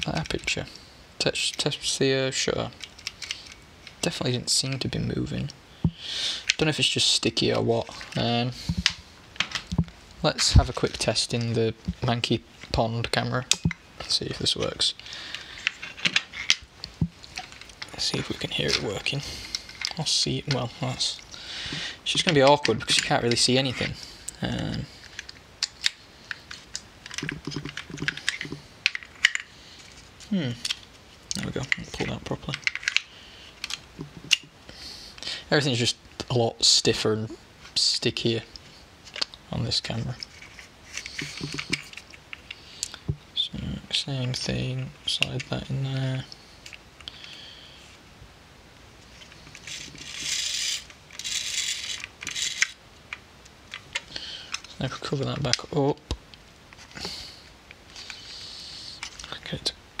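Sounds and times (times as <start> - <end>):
plastic and metal clicks and knocks: 25.2 - 29.5, 41.0 - 42.1.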